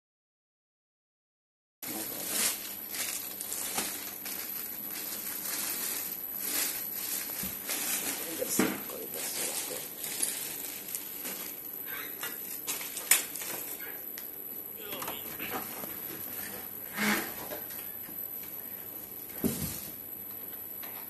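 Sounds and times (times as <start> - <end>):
plastic bag crinkling: 1.8 - 13.9.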